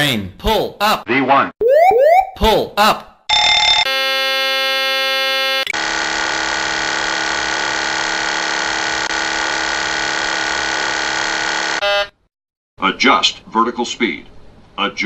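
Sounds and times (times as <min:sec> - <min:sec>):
buzzer-like warning tone: 0:03.3 - 0:05.8, 0:11.3 - 0:12.2
continuous alarm tone: 0:03.3 - 0:05.8.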